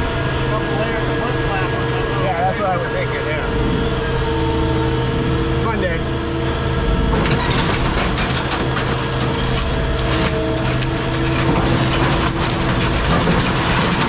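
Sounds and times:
engine running: 0:00.0 - 0:14.0
dense crackling and crunching: 0:04.2 - 0:14.0.

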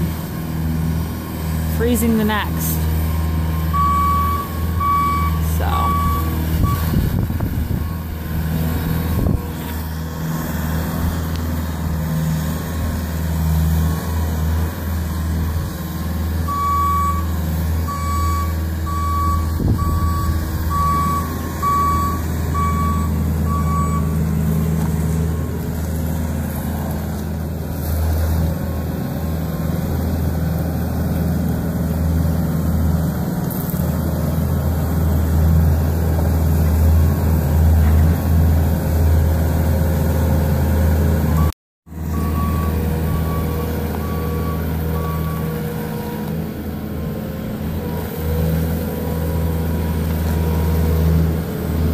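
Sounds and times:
diesel engine running: 0:00.0 - 0:51.9
back-up alarm beeping: 0:03.7 - 0:07.0, 0:17.9 - 0:24.2, 0:42.1 - 0:45.5.

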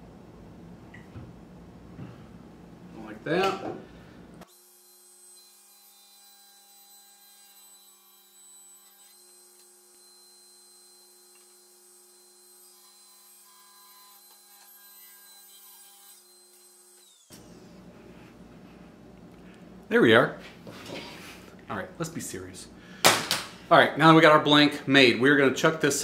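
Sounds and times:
faint steady hum: 0:00.0 - 0:04.5, 0:17.3 - 0:25.9.

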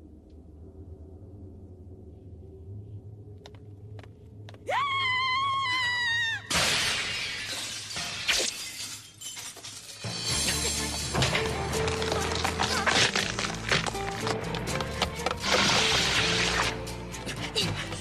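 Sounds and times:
window glass shattering: 0:06.5 - 0:11.3.

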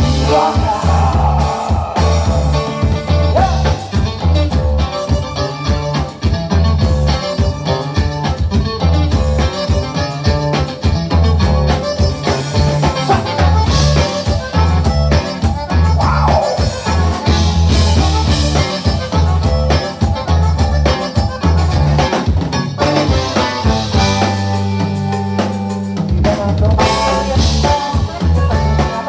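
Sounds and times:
button accordion lead: 0:00.0 - 0:29.0
live band playing: 0:00.0 - 0:29.0
pulsing bass line: 0:00.0 - 0:29.0.

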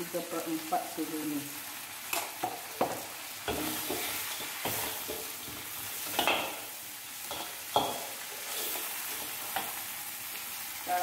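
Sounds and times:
food sizzling in a wok: 0:00.0 - 0:11.0
metal spatula scraping a wok: 0:03.5 - 0:06.6, 0:07.3 - 0:09.7.

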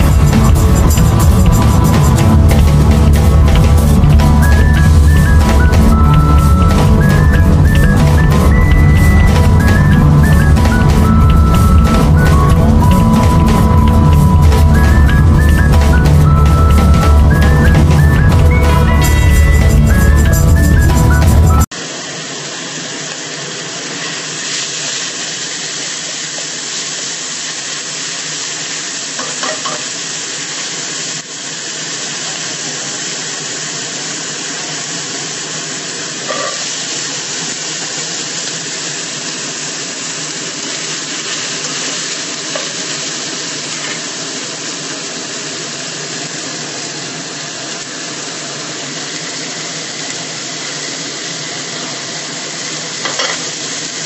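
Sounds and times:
food sizzling in a frying pan: 0:21.6 - 0:54.0.

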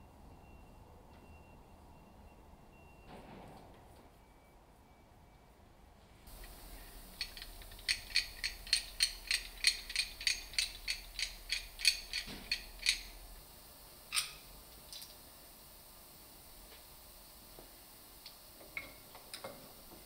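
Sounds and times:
ratchet-like mechanical clicks: 0:07.2 - 0:13.2.

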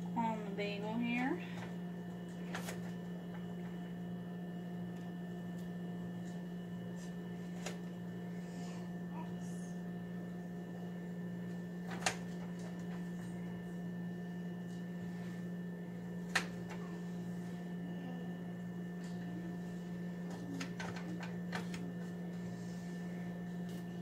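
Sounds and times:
appliance humming: 0:00.0 - 0:24.0.

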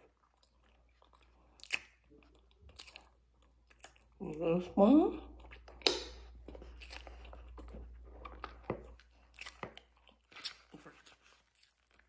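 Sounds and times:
chewing powder crunches: 0:00.0 - 0:04.2, 0:05.4 - 0:12.0.

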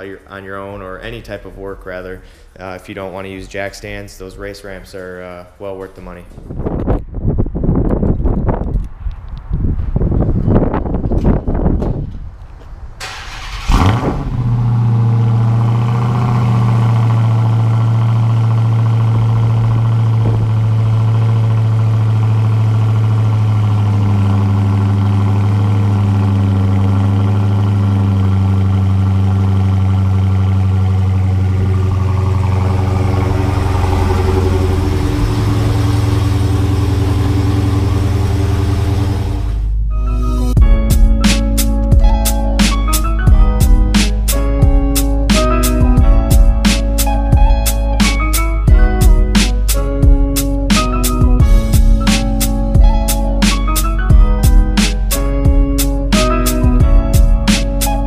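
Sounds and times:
car engine starting and idling: 0:10.6 - 0:58.0
engine revving: 0:13.0 - 0:40.6.

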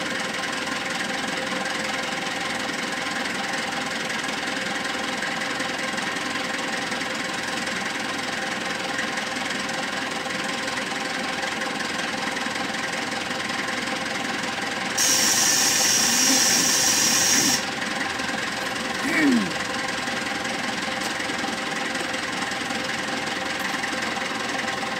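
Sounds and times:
diesel engine running: 0:00.0 - 0:24.9
loud hiss: 0:15.0 - 0:17.6.

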